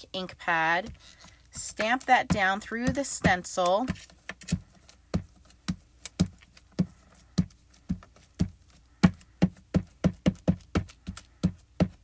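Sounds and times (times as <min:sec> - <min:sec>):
ink pad tapping through stencil: 0:00.8 - 0:12.0.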